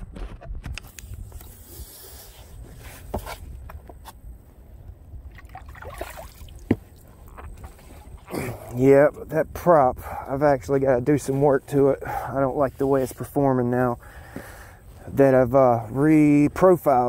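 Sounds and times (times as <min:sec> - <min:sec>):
water sloshing and dripping: 0:05.3 - 0:08.3.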